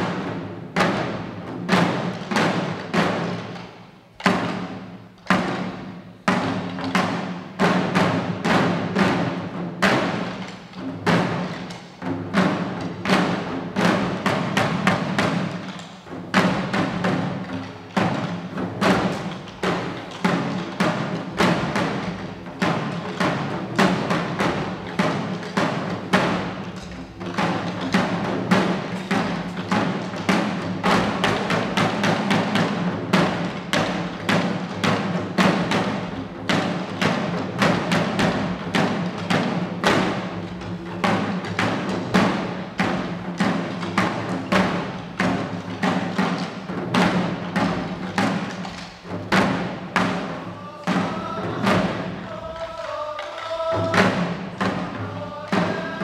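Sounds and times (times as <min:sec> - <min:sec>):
drums beaten with sticks: 0:00.0 - 0:56.0.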